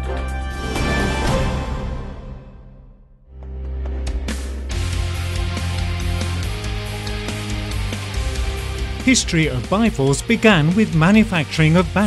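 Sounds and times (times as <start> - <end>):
music with heavy bass and beat: 4.6 - 12.0.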